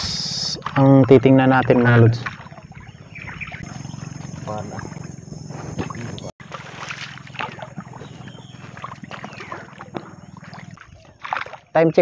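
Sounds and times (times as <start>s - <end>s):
steady low hum: 0.0s - 11.4s
paddle strokes splashing: 0.1s - 11.8s.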